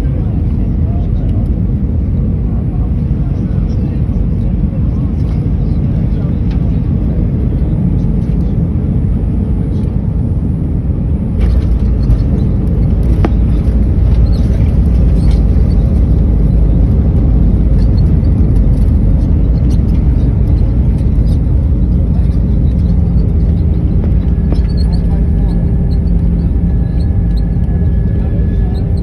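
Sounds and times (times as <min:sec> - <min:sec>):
airliner engine and airflow rumble: 0:00.0 - 0:29.0
landing rollout rumble: 0:11.3 - 0:29.0.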